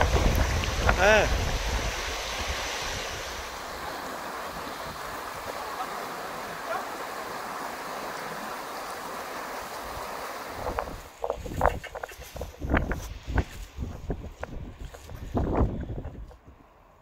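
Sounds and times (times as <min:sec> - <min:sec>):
river rushing over rocks: 0:00.0 - 0:12.7.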